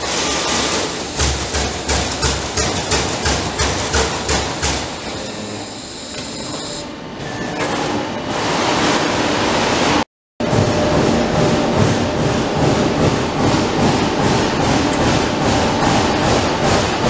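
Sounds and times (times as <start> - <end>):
punch press punching sheet metal: 0.0 - 5.2
steady machine noise: 0.0 - 7.2, 8.3 - 17.0.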